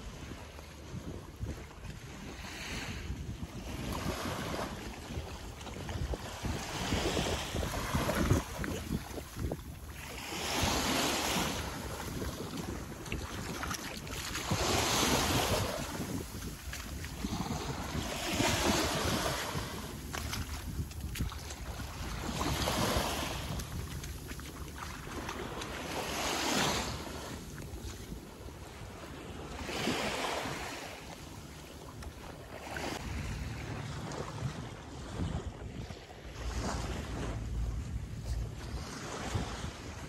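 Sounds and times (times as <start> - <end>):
small waves washing on beach: 0.0 - 40.0.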